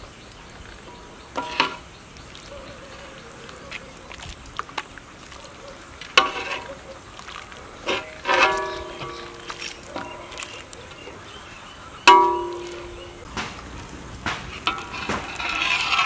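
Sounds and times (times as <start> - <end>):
curry simmering with soft hiss: 0.0 - 16.0.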